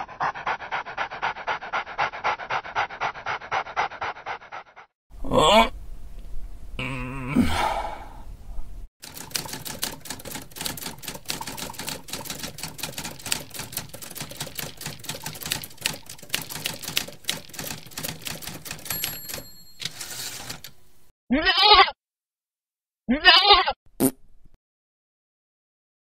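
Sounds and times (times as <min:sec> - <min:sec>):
person moaning and groaning: 0:05.2 - 0:05.8, 0:06.8 - 0:08.3
typewriter typing: 0:09.0 - 0:20.8
typewriter bell ringing: 0:17.9 - 0:20.7.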